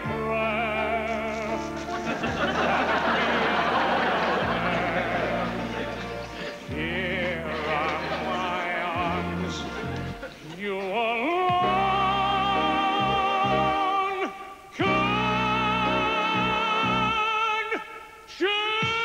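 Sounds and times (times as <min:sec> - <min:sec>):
man singing operatic ballad: 0:00.0 - 0:19.0
musical accompaniment: 0:00.0 - 0:19.0.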